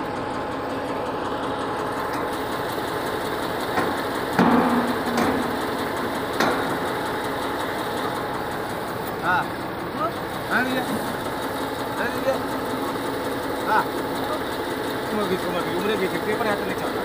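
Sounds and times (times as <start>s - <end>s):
engine idling: 0.0s - 17.0s
metal knocks with ring: 3.8s - 7.0s.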